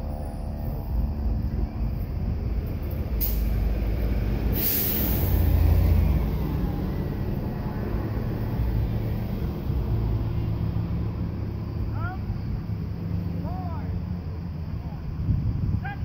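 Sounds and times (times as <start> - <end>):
steady low rumble: 0.0 - 16.0
short hisses: 4.5 - 5.8.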